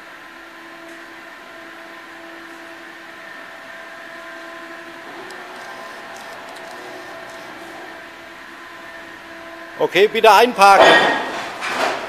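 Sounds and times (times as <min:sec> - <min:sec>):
electric forklift whine: 0:00.0 - 0:10.3.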